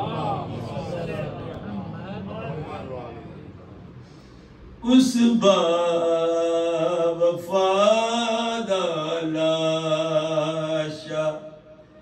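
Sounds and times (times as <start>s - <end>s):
man chanting a mournful lament: 4.8s - 11.8s.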